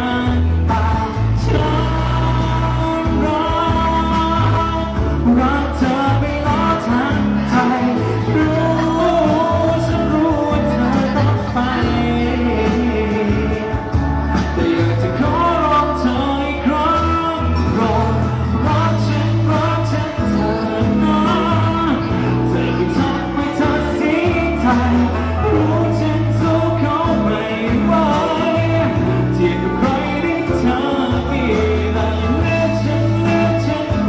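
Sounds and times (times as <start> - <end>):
amplified backing music: 0.0 - 34.0
man singing into microphone: 0.0 - 34.0.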